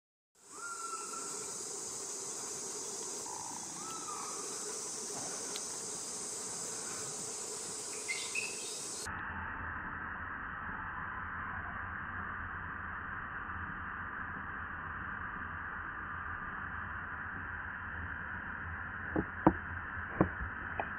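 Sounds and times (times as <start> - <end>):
insects chorus: 0.4 - 20.9
low-pitched hiss: 0.4 - 20.9
short high calls: 3.2 - 4.6.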